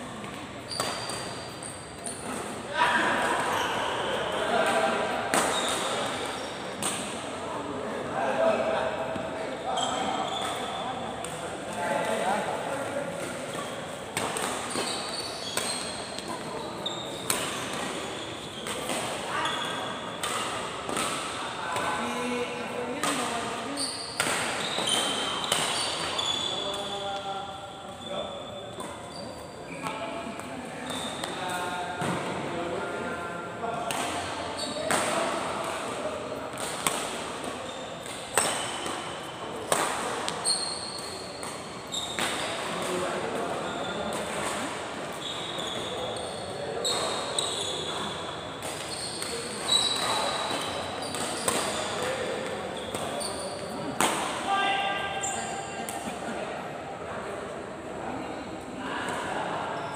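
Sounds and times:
shoes squeaking on court: 0:00.1 - 0:02.6, 0:05.3 - 0:07.0, 0:09.6 - 0:11.0, 0:13.2 - 0:21.1, 0:21.7 - 0:27.2, 0:27.8 - 0:32.2, 0:34.1 - 0:35.2, 0:37.5 - 0:54.0
rackets hitting shuttlecock: 0:13.2 - 0:16.5, 0:20.2 - 0:21.4, 0:33.8 - 0:43.4.

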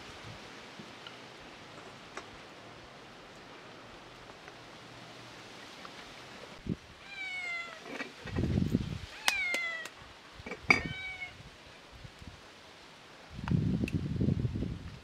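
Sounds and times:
cat meowing: 0:07.0 - 0:07.9, 0:09.2 - 0:09.9, 0:10.8 - 0:11.4.

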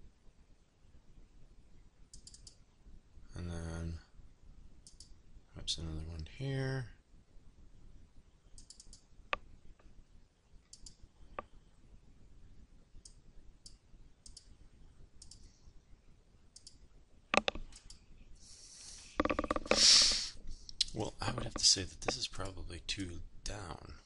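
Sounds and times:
computer mouse clicking: 0:02.1 - 0:02.6, 0:04.8 - 0:05.1, 0:08.6 - 0:09.4, 0:10.7 - 0:11.5, 0:13.0 - 0:14.5, 0:15.2 - 0:15.5, 0:16.6 - 0:18.0, 0:19.2 - 0:22.2.

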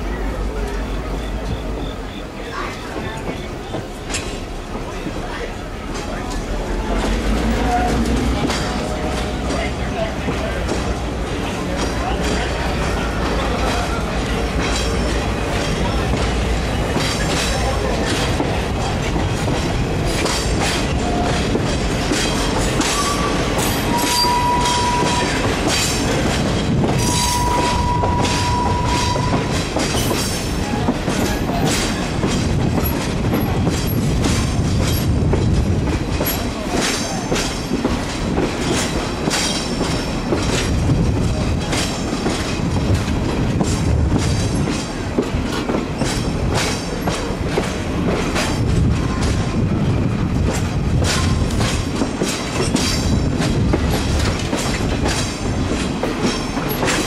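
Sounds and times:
train wheels rumbling: 0:00.0 - 0:57.0
clicking over rail joints: 0:02.5 - 0:57.0
high wheel squeals: 0:22.8 - 0:26.2, 0:27.0 - 0:30.4.

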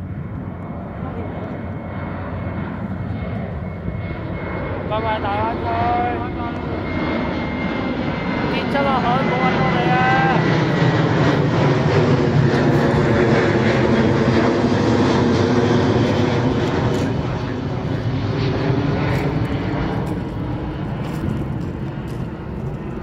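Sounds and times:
jet engines roaring overhead: 0:00.0 - 0:23.0.

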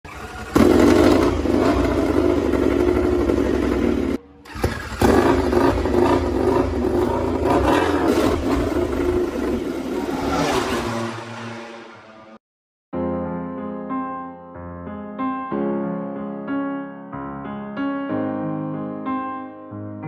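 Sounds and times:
motorcycle engine at high revs: 0:00.1 - 0:11.7.

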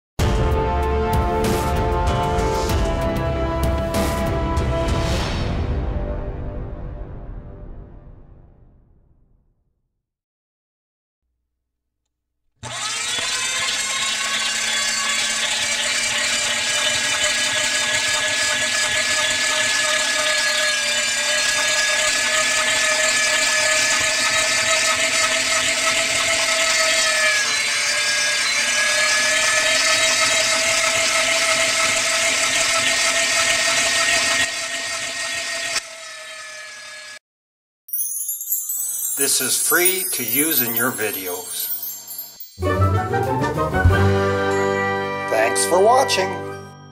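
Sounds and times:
electric grinder whining and grinding: 0:12.6 - 0:37.2, 0:38.9 - 0:42.8.

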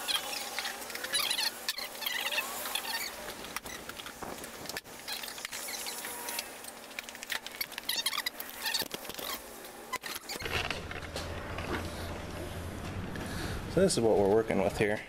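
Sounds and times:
high-pitched chirping: 0:00.0 - 0:03.8.

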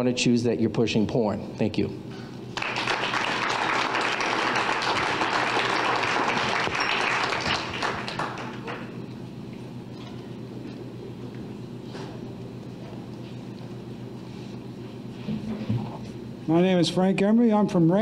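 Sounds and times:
audience applauding: 0:02.5 - 0:09.0.

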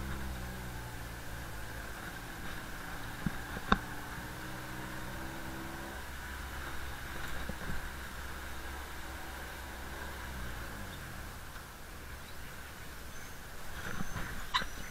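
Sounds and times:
muffled vehicle engine: 0:00.0 - 0:14.9.

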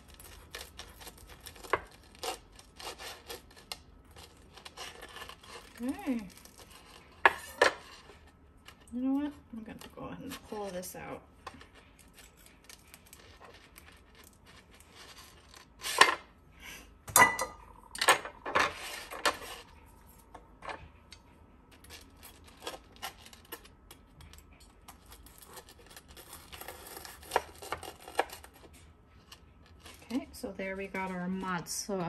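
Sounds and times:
knife sawing crisp batter: 0:00.0 - 0:08.1, 0:25.0 - 0:28.7.

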